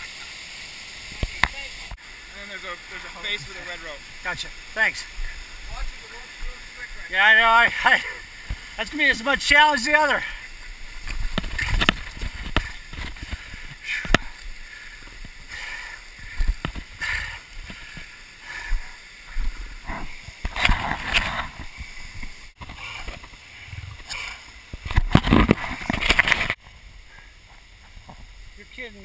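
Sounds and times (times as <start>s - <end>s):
falling water rushing: 0.0s - 29.0s
camera rustling and scraping: 11.0s - 14.2s, 19.8s - 26.6s.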